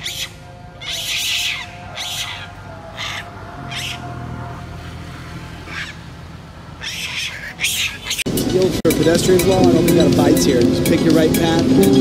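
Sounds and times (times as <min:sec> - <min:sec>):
macaques screeching: 0:00.0 - 0:04.2, 0:05.6 - 0:06.0, 0:06.8 - 0:08.3.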